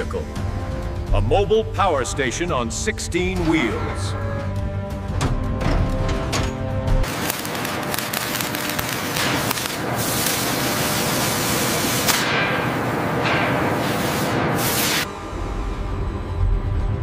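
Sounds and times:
spray gun hissing: 0:08.1 - 0:13.0, 0:13.7 - 0:15.1.

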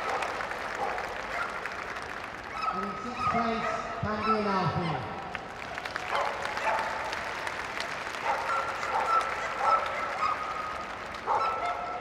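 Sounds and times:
dog barking: 0:00.0 - 0:01.6, 0:02.6 - 0:04.5, 0:06.1 - 0:07.1, 0:08.2 - 0:12.0
audience applauding: 0:00.0 - 0:03.3, 0:05.2 - 0:12.0.

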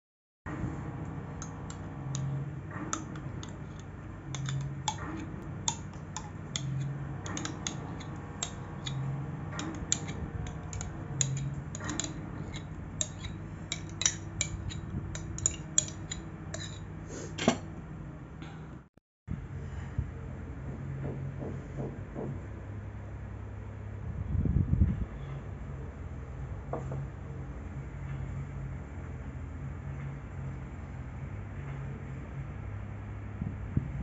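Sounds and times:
low steady hum: 0:00.5 - 0:21.7
spoon clicking against glass dish: 0:01.4 - 0:02.4, 0:03.0 - 0:16.8.

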